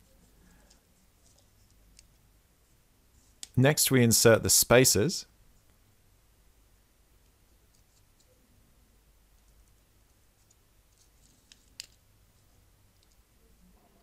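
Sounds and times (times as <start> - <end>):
faint plastic ticks and clicks: 9.3 - 12.0, 12.9 - 13.3.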